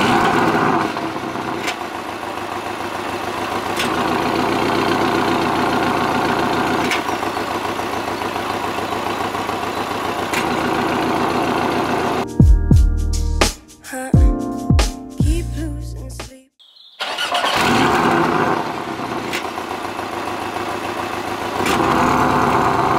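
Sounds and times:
car engine idling: 0.0 - 12.2, 17.1 - 22.9.

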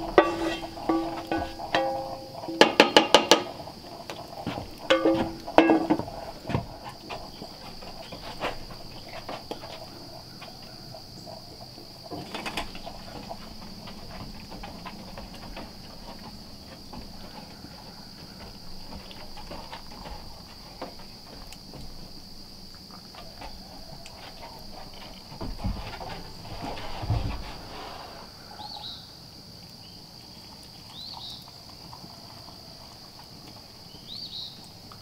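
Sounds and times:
metal utensil scraping skillet: 0.0 - 3.7, 4.9 - 6.4.

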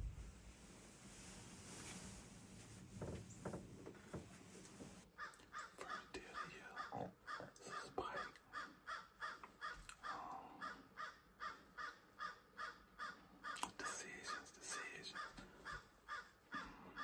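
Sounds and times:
crow cawing: 5.2 - 13.7, 15.1 - 17.0.

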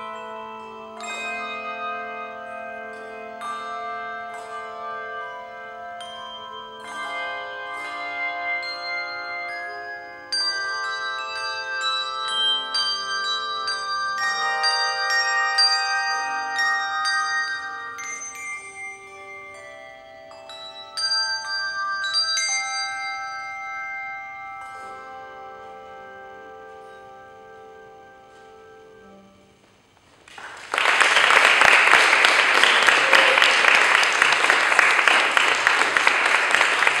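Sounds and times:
handbell choir ringing chords: 0.0 - 29.4, 30.8 - 37.0
audience applause: 30.2 - 37.0.

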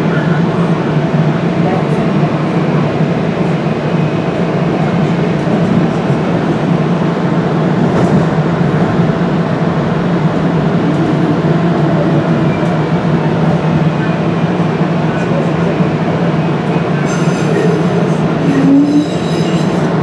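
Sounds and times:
light rail train running noise: 0.0 - 20.0.

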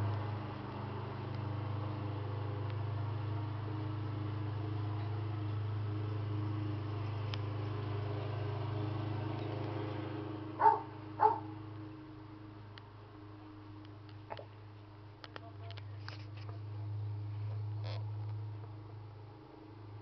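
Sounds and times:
steady low hum: 0.0 - 20.0
dog barking: 10.6 - 11.5.

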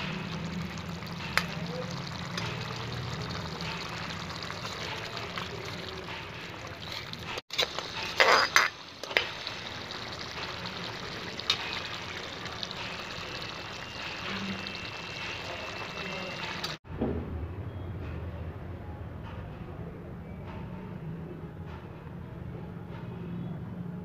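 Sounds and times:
curry bubbling in a pan: 0.0 - 16.8.

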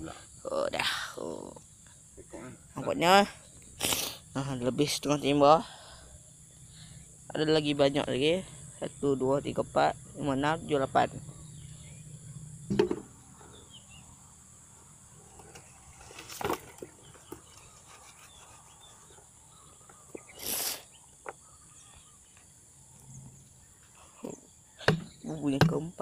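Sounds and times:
high insect chorus: 0.0 - 26.0
trap knock: 24.9 - 25.8.

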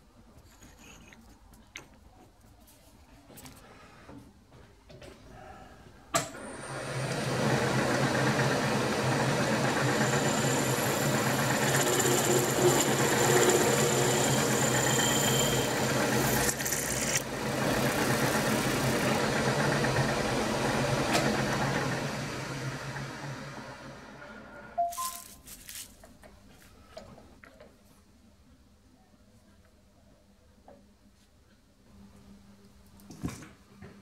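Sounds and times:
drill grinding through steel: 9.8 - 19.2.

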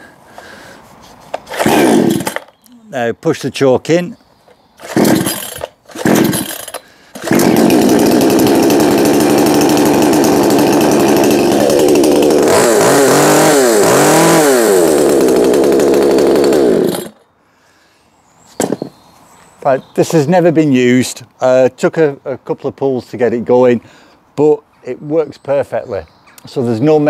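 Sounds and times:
chainsaw pull-starting: 1.3 - 2.5, 4.8 - 17.2
chainsaw running and revving: 1.5 - 2.4, 4.8 - 17.2.

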